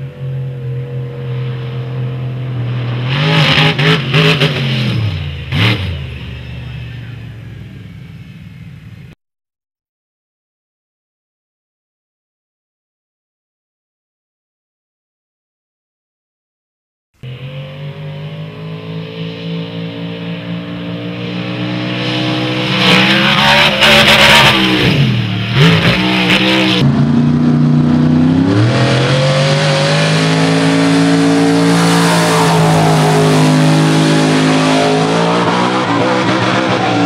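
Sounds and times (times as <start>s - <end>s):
monster truck engine revving: 0.8s - 6.7s, 17.2s - 37.0s
loud rushing noise: 21.6s - 37.0s.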